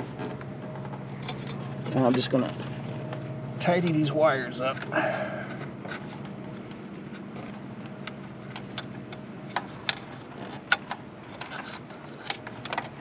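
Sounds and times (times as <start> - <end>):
steady low hum: 0.0 - 13.0
wires and connectors clicking: 5.5 - 13.0.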